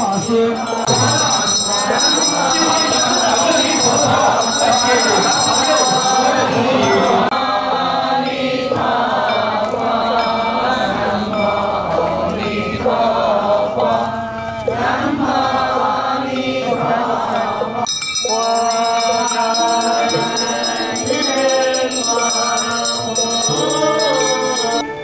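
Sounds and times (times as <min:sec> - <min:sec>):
high shimmer: 0:00.0 - 0:07.3, 0:17.9 - 0:25.0
group of voices chanting: 0:00.0 - 0:25.0
recorded chant with held notes: 0:00.0 - 0:25.0.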